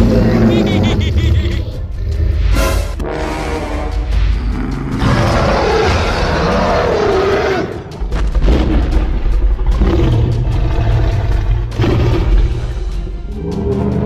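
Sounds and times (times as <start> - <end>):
long wavering roar: 3.0 - 7.9.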